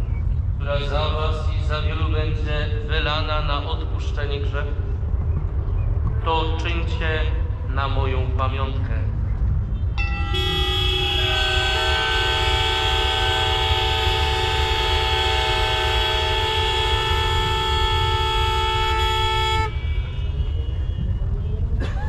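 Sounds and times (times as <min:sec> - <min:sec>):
steady low rumble: 0:00.0 - 0:22.0
motorcycle horns blaring: 0:09.7 - 0:21.8.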